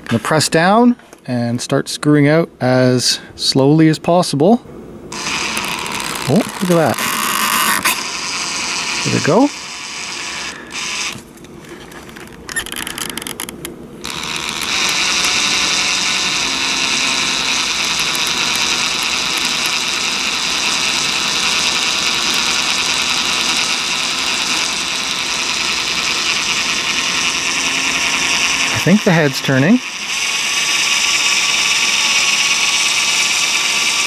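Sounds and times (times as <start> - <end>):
cordless drill turning slowly: 4.8 - 34.0
drill clicks: 5.0 - 11.3, 12.1 - 34.0.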